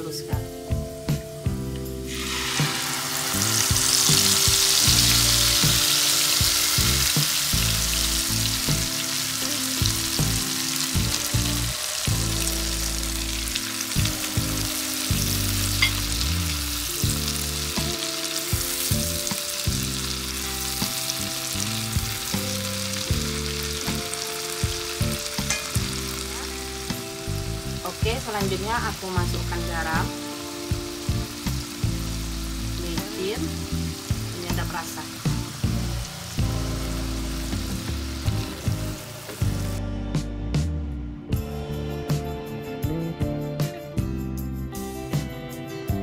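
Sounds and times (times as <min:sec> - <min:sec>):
background music: 0:00.0 - 0:46.0
paste sizzling in hot oil: 0:02.0 - 0:39.8.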